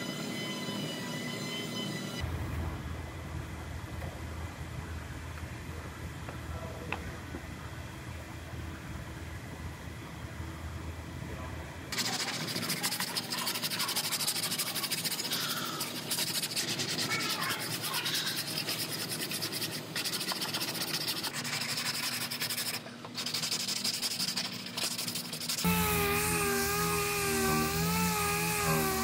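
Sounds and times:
sandpaper rasping on metal: 12.0s - 29.0s.

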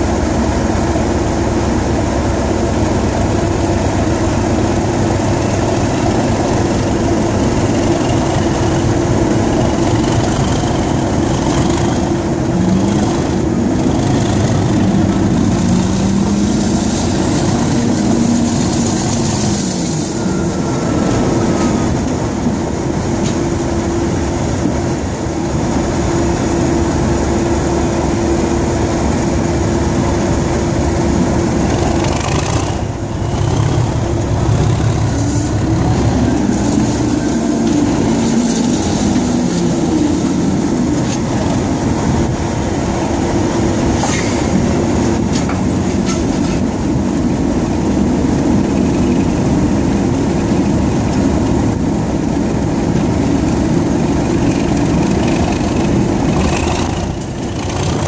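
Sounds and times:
diesel locomotive engine drone: 0.0s - 58.0s
turbocharger whine: 0.0s - 58.0s.

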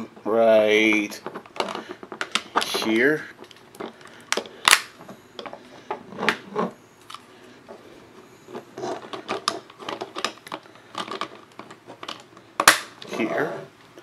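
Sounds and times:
plastic parts clicking together: 8.8s - 13.1s.

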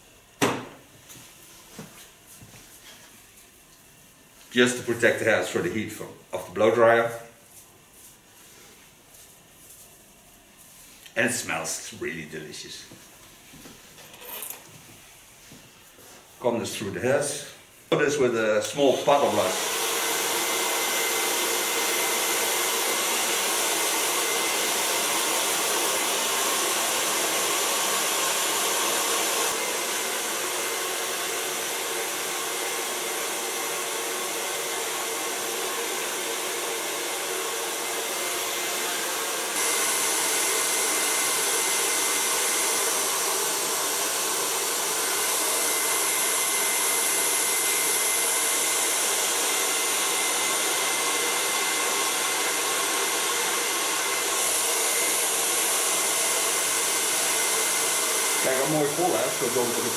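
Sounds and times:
hair dryer running: 17.3s - 59.9s.

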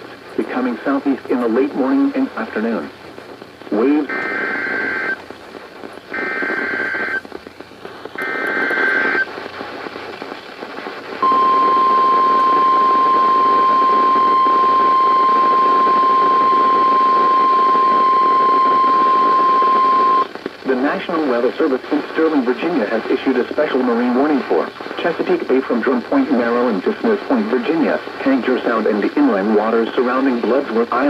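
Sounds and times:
steady warning alarm tone: 11.2s - 20.3s.

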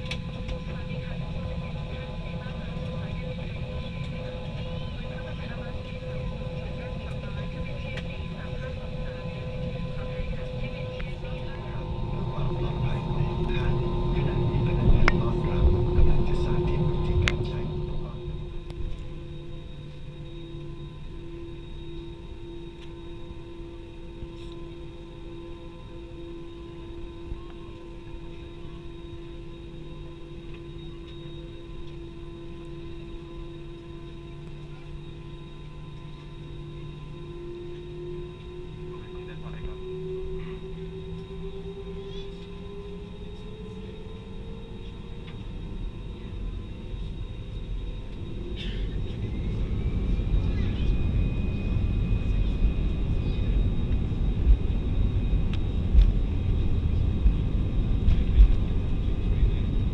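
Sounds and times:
low rumble: 0.0s - 30.0s, 44.8s - 59.9s
aircraft cabin drone: 0.0s - 59.9s
faint high engine whine: 0.0s - 59.9s.

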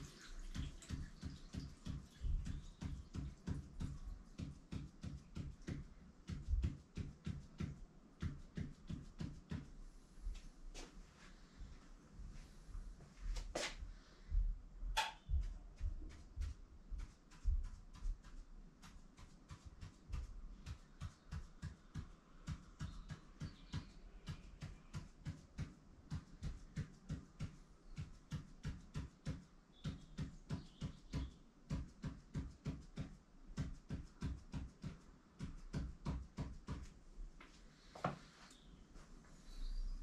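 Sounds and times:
marker tapping on paper: 0.5s - 9.7s, 15.0s - 37.0s.

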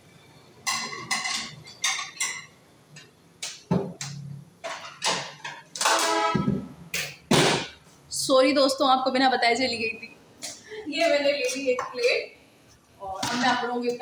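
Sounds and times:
dishes clinking and knocking: 0.6s - 2.6s, 3.5s - 7.8s.

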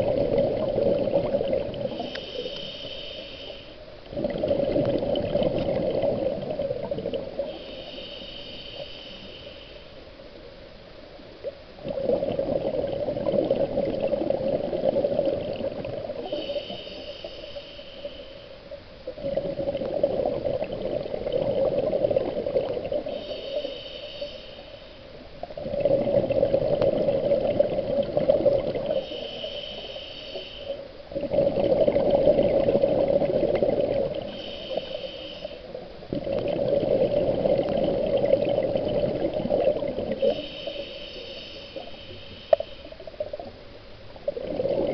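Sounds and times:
diver exhaling bubbles: 0.0s - 2.4s, 4.1s - 7.5s, 11.8s - 16.8s, 19.1s - 23.1s, 25.6s - 29.1s, 31.2s - 34.9s, 36.1s - 40.8s, 44.3s - 44.9s
regulator whine on inhalation: 0.0s - 4.0s, 6.0s - 10.9s, 15.8s - 19.4s, 21.6s - 36.0s, 40.0s - 43.2s.

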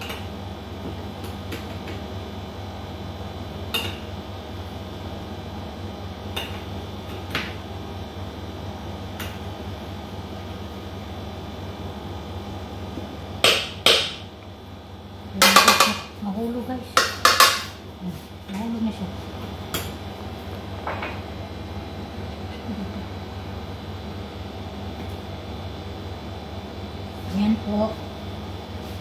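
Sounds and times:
metal spoon knocking on pot: 15.4s - 16.0s, 17.0s - 17.7s.

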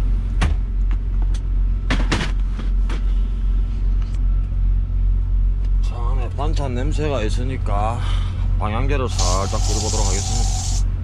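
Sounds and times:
diesel engine idling: 4.5s - 11.0s.

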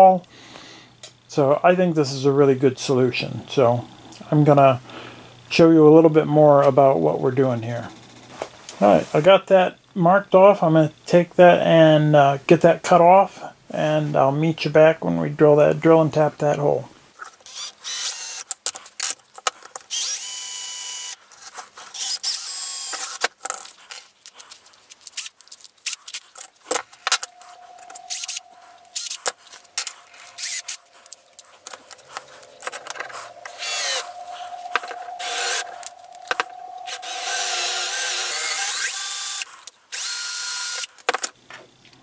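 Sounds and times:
cordless drill whining: 17.4s - 18.4s, 19.9s - 21.2s, 21.9s - 23.2s, 27.3s - 31.0s, 33.3s - 35.9s, 36.8s - 40.9s.

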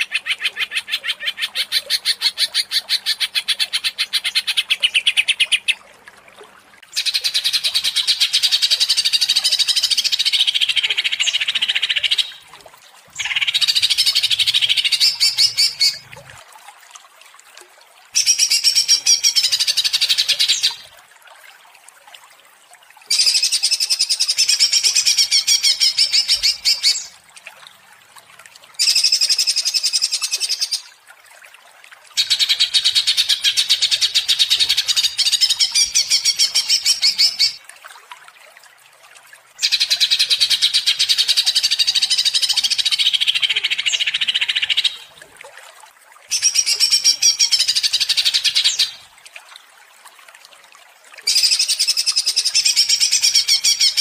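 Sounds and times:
bird singing rattling song: 13.2s - 16.1s.

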